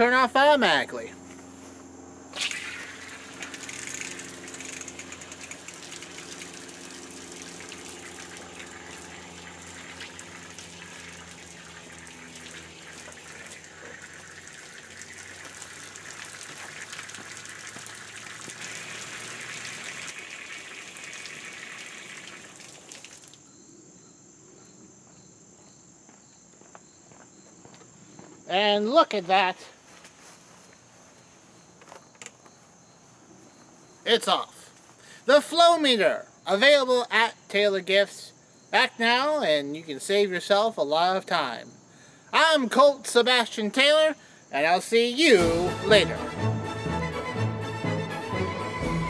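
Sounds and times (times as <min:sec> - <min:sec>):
quiet outdoor background: 0:00.0 - 0:49.0
garden hose spraying water: 0:02.3 - 0:23.5.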